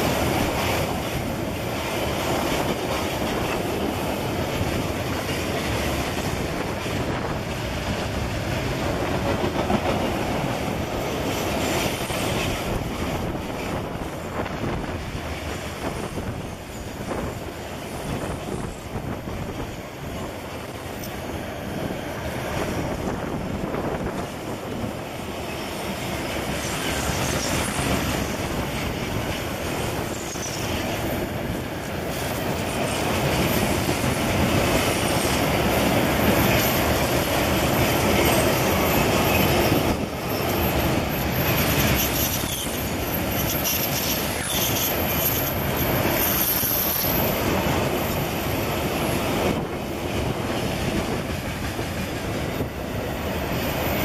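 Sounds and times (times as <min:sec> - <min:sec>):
train wagons rumbling past: 0:00.0 - 0:54.0
high wheel squeal: 0:29.8 - 0:31.2, 0:38.0 - 0:49.2.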